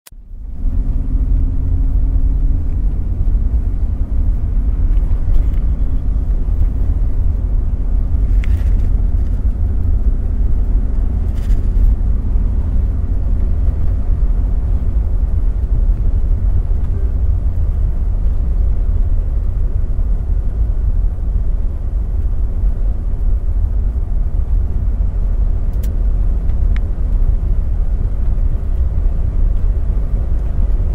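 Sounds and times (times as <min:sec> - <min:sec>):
faint hum: 0:00.2 - 0:21.0
airliner cabin rumble: 0:00.2 - 0:30.9.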